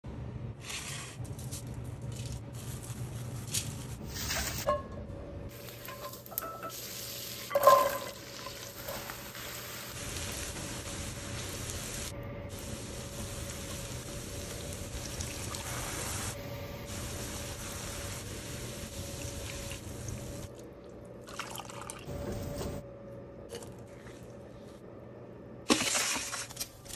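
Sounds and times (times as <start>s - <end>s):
cooking in a pan: 5.5s - 22.8s
steady hiss: 8.6s - 20.5s.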